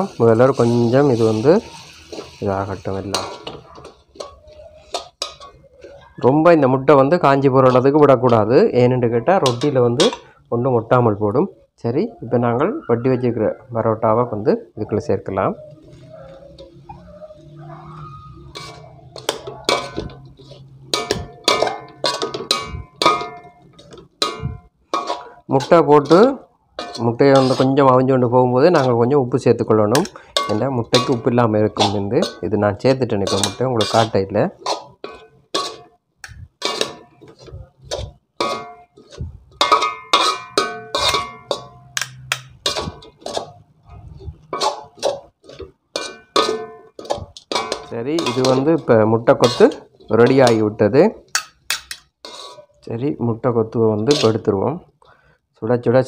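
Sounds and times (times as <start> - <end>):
metal spatula clanking on wok: 0.0 - 6.4, 9.3 - 10.4, 17.4 - 29.1, 29.8 - 52.7, 54.0 - 54.5.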